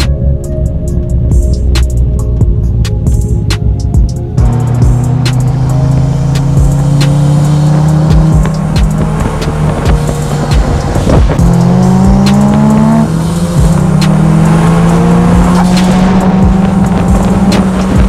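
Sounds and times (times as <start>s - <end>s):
background music with beat: 0.0s - 18.0s
car engine pulling: 4.4s - 18.0s.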